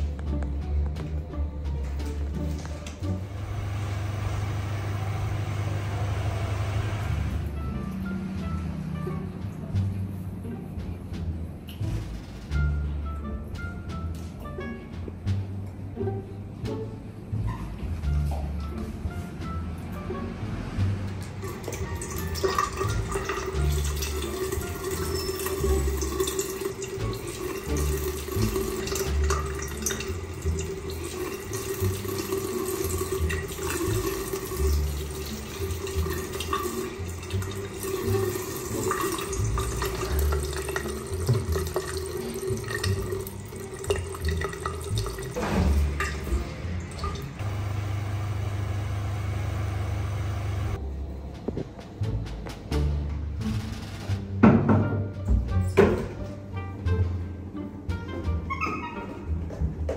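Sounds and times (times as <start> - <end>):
tap water running into basin: 21.2 - 50.8.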